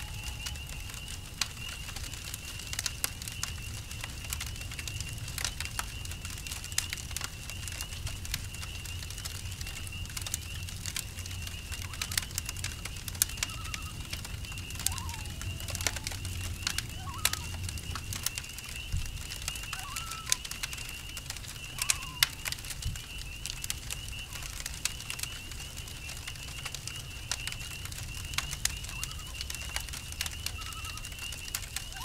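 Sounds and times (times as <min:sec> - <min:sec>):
campfire crackling and popping: 0:00.0 - 0:32.0
cricket trill: 0:00.0 - 0:32.0
short animal calls: 0:14.8 - 0:16.1, 0:17.0 - 0:17.6, 0:19.7 - 0:20.4, 0:21.8 - 0:22.2.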